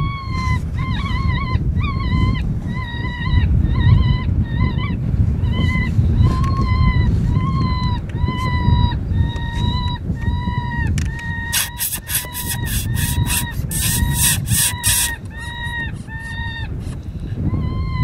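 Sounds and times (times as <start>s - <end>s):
predator call distress cry: 11.4s - 16.6s
raspy hiss: 11.6s - 15.2s.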